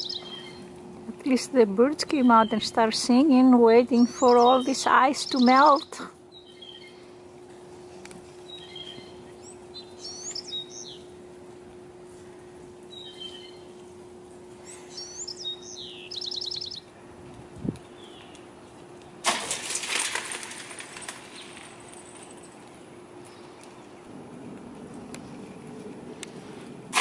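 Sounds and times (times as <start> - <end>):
songbirds singing: 0.0 - 1.4, 2.0 - 11.4, 12.3 - 17.0, 17.6 - 19.2
faint steady hum: 0.0 - 27.0.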